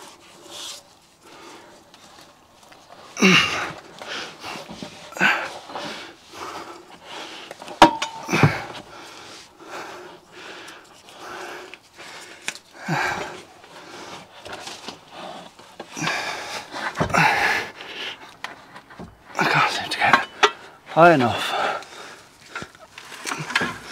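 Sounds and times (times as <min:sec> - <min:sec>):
man grunting and breathing hard: 0:03.2 - 0:03.8, 0:05.1 - 0:05.5, 0:08.2 - 0:09.0, 0:12.8 - 0:13.5, 0:16.0 - 0:17.8, 0:19.3 - 0:20.2, 0:20.9 - 0:22.2.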